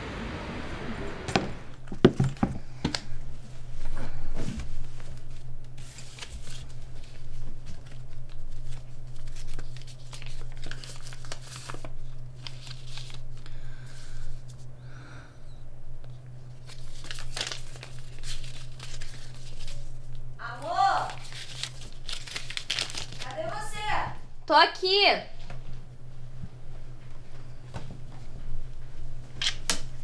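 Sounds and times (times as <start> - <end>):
low hum: 0.0 - 24.5
crinkly rustling: 4.6 - 13.5, 16.5 - 20.3, 21.0 - 23.7.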